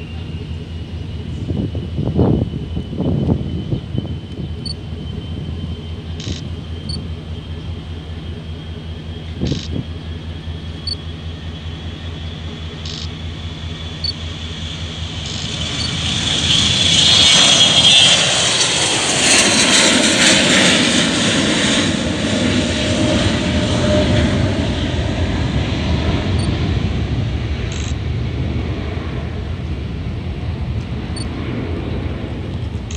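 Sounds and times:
jet taking off: 0:00.0 - 0:32.9.

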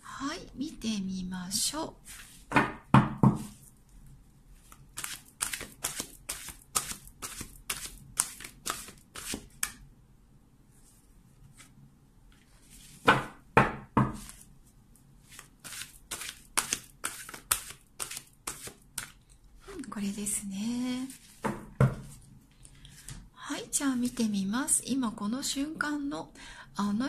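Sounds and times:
cards being shuffled: 0:04.6 - 0:09.8, 0:15.2 - 0:19.2.

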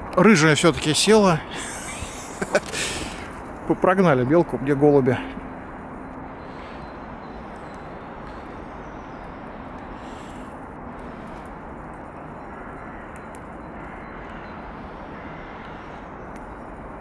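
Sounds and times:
outdoor background rumble: 0:00.0 - 0:17.0
faint high ticks: 0:11.3 - 0:14.6.

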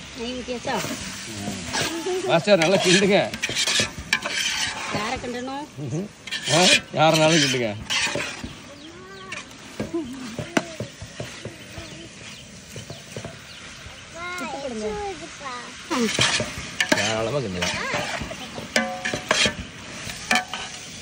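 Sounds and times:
metal spoon stirring in pot: 0:00.6 - 0:13.6, 0:15.7 - 0:21.0.

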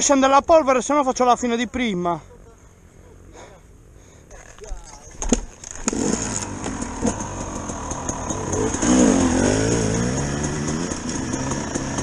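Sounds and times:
dirt bike engine revving: 0:05.6 - 0:12.0.

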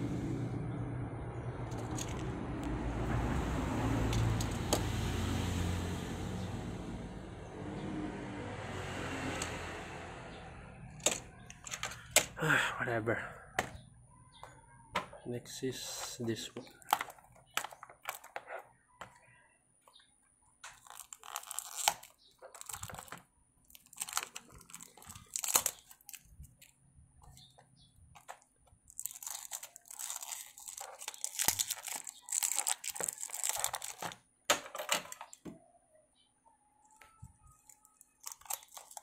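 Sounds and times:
plastic wrap crinkling: 0:20.6 - 0:27.4, 0:28.2 - 0:34.2, 0:37.4 - 0:39.0.

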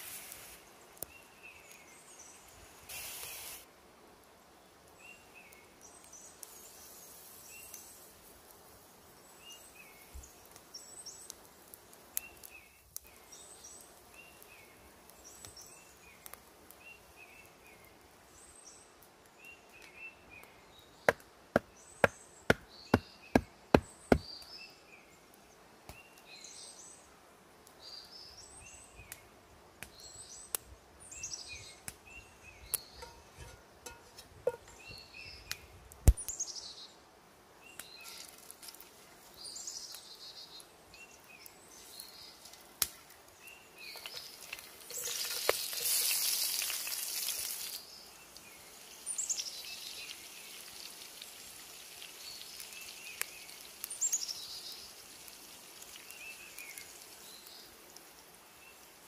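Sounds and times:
wood fire crackling: 0:00.0 - 0:24.5, 0:29.1 - 0:36.4, 0:37.7 - 0:59.0
woodland birds singing: 0:00.6 - 0:03.4, 0:09.1 - 0:27.1, 0:29.9 - 0:37.0, 0:37.6 - 0:38.4, 0:39.2 - 0:46.7, 0:47.5 - 0:55.0, 0:55.8 - 0:59.0.

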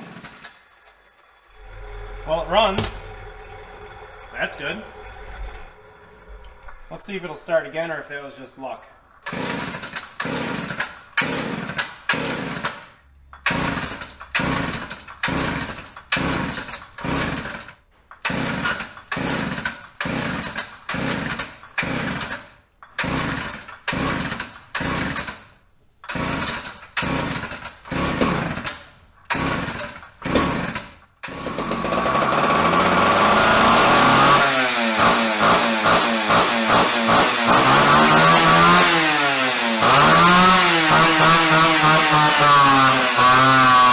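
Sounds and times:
chainsaw engine revving: 0:01.5 - 0:05.7, 0:09.2 - 0:12.7, 0:13.5 - 0:17.6, 0:18.3 - 0:22.4, 0:23.0 - 0:25.3, 0:26.1 - 0:28.7, 0:29.3 - 0:43.9
chainsaw recoil starter cranking: 0:09.2 - 0:43.9.

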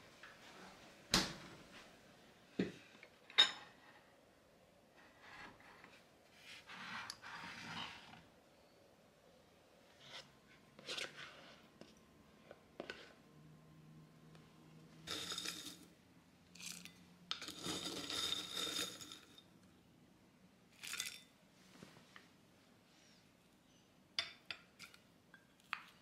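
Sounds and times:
soft scraping rustle: 0:05.0 - 0:08.2.

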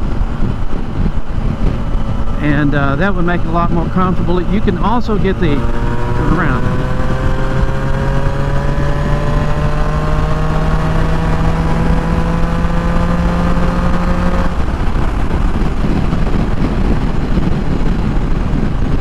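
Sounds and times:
motorcycle engine accelerating: 0:00.0 - 0:19.0
wind and road noise: 0:00.0 - 0:19.0.

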